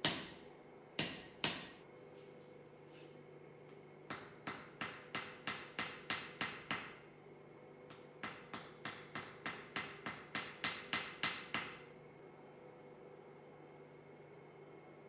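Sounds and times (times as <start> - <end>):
hammer striking metal on anvil: 0.0 - 0.4, 1.0 - 1.8, 4.1 - 7.0, 7.9 - 11.9.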